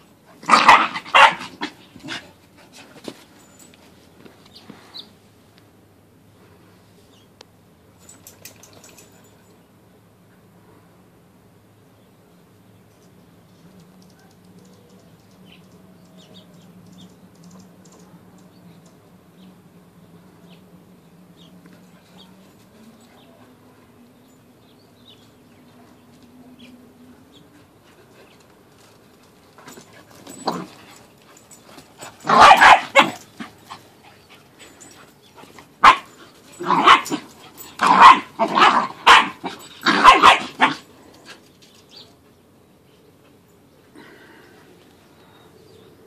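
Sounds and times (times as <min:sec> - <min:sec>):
dog barking: 0:00.5 - 0:01.5, 0:32.3 - 0:33.2, 0:35.8 - 0:37.2, 0:37.8 - 0:40.8.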